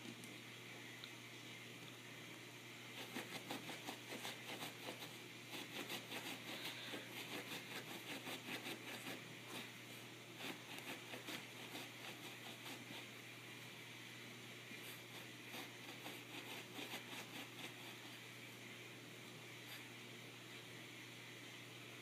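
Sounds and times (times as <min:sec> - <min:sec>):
steady low hum: 0:00.0 - 0:22.0
dog scratching on carpet: 0:03.0 - 0:09.8, 0:10.4 - 0:13.1, 0:14.8 - 0:18.2.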